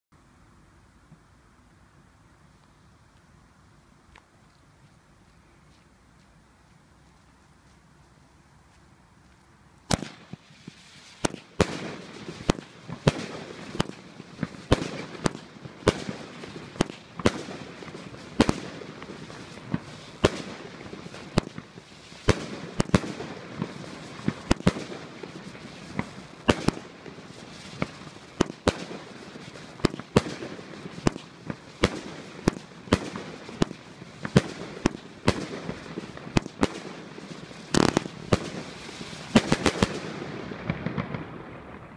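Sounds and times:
firework crackle: 8.1 - 41.9
firework bangs: 9.8 - 41.9.

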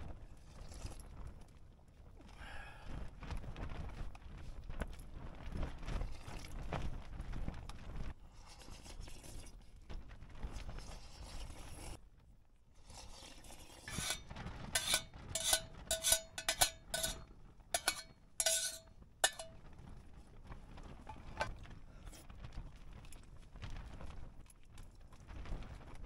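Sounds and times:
chopsticks scraping metal tin: 12.9 - 17.2, 17.8 - 19.6
metallic clinks: 14.8 - 17.2, 17.8 - 19.5.

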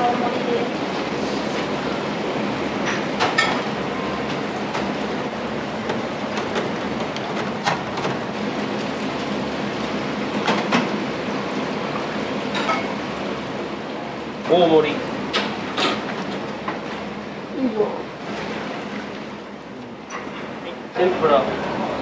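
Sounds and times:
steady rushing kitchen noise: 0.0 - 22.0
crockery and utensils clinking: 12.5 - 13.0.

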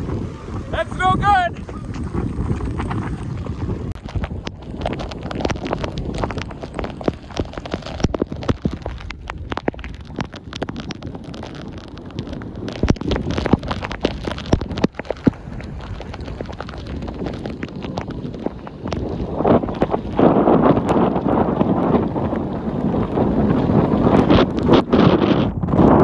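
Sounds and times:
surf washing up beach: 0.0 - 25.4
wind buffeting microphone: 0.0 - 26.0
sharp crackling hits: 3.9 - 22.0.

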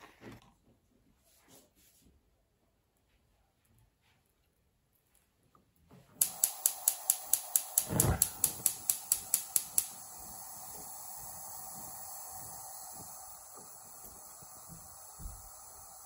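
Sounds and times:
gas burner hissing: 6.2 - 16.0
gas catching whoosh: 6.2 - 16.0
spark igniter ticking: 6.2 - 16.0.

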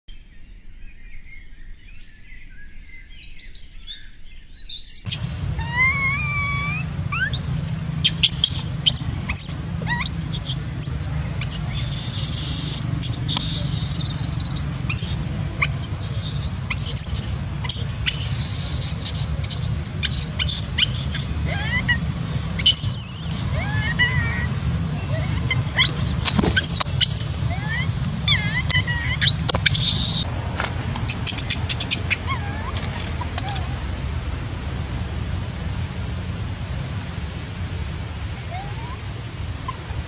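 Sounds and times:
baby monkey squealing: 5.1 - 30.3, 30.9 - 33.9, 38.4 - 40.0.

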